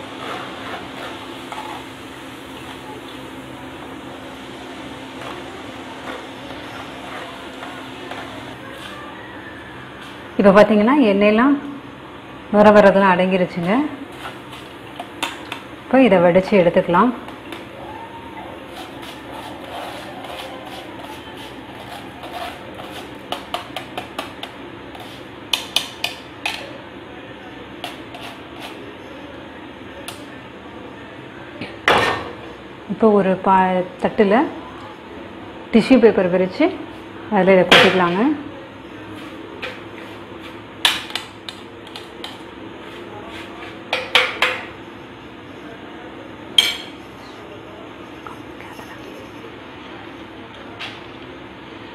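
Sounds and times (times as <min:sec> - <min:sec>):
oil sizzling: 0:00.0 - 0:10.4, 0:13.6 - 0:16.0
steady background noise: 0:00.0 - 0:51.9.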